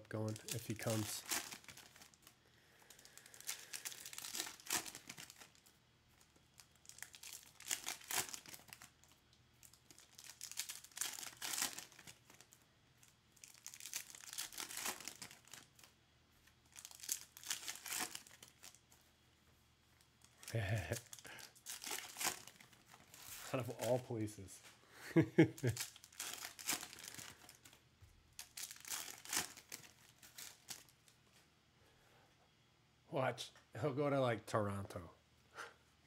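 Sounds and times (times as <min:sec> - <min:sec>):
foil wrappers crinkling and tearing: 0:00.1 - 0:19.0, 0:20.1 - 0:24.1, 0:25.5 - 0:31.1.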